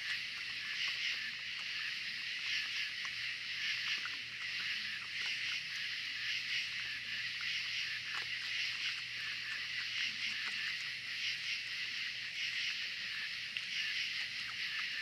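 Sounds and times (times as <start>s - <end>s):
animals chewing: 0.0s - 15.0s
night insects buzzing: 0.0s - 15.0s.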